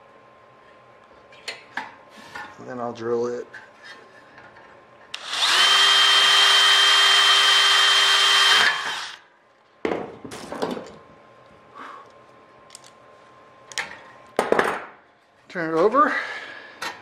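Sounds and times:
cordless drill whining: 5.2s - 9.2s.

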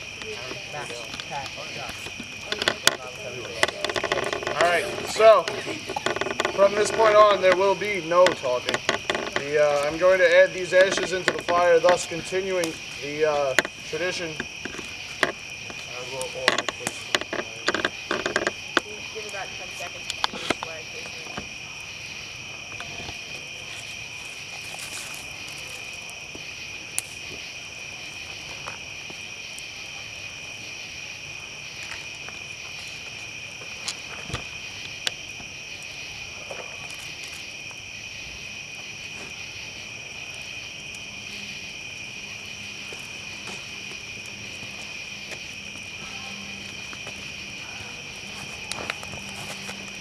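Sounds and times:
night insects chorus: 0.0s - 50.0s
sharp clicks and pops: 0.2s - 7.6s, 8.2s - 9.9s, 13.5s - 19.4s.

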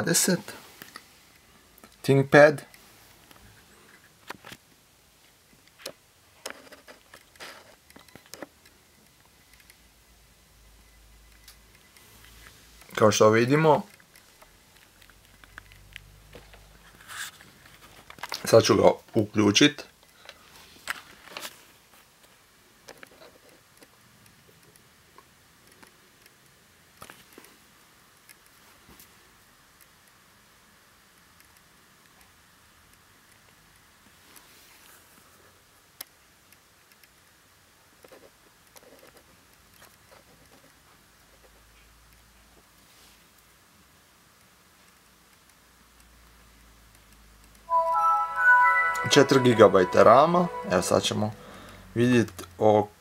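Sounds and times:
soft handling clicks and rustles: 0.6s - 9.8s, 13.7s - 19.2s, 19.8s - 29.2s, 32.9s - 47.6s.

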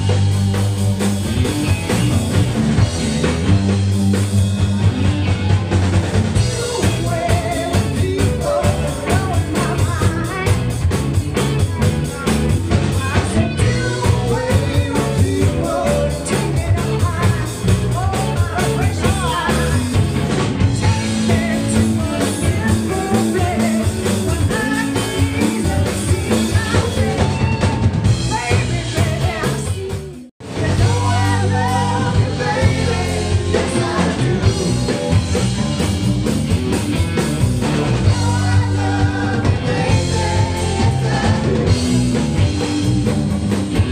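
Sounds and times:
live rock band: 0.0s - 43.9s
woman singing lead: 6.4s - 20.0s, 20.8s - 35.2s, 38.0s - 42.1s.

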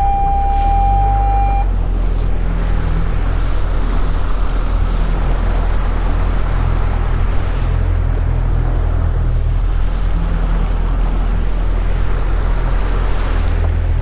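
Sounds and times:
high electronic beep: 0.0s - 1.7s
outboard motor running: 0.0s - 14.0s
wind and water rushing: 0.0s - 14.0s.

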